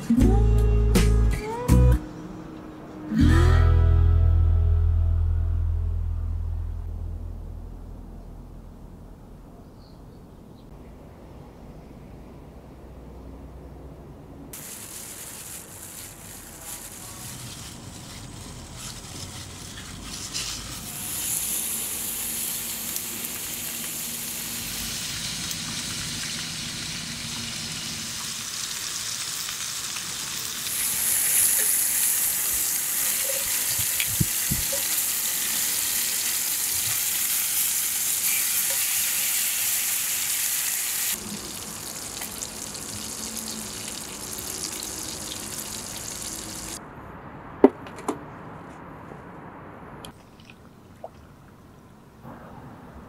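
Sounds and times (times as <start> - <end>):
pork sizzling in a metal pan: 14.6 - 46.8.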